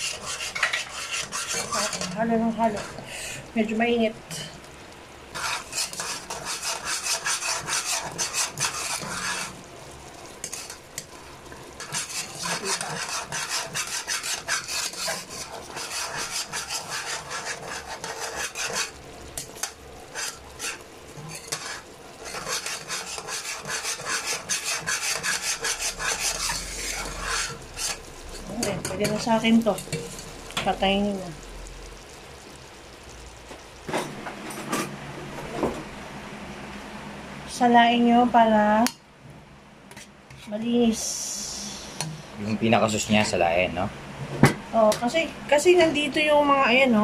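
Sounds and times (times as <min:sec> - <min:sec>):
utensil stirring and scraping a pot: 0:00.0 - 0:03.1, 0:05.3 - 0:31.1.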